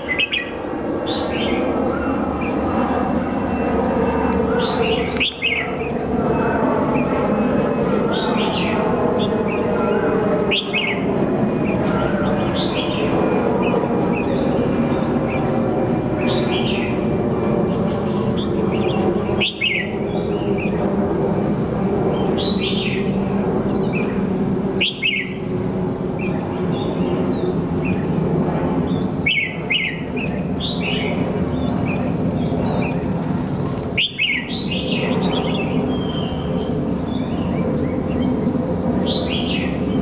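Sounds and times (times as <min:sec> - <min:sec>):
bird call notes: 0:00.0 - 0:02.7, 0:04.6 - 0:05.9, 0:09.2 - 0:11.1, 0:18.4 - 0:20.4, 0:23.9 - 0:25.5, 0:29.2 - 0:31.1, 0:32.9 - 0:38.2
low mechanical drone: 0:00.0 - 0:40.0.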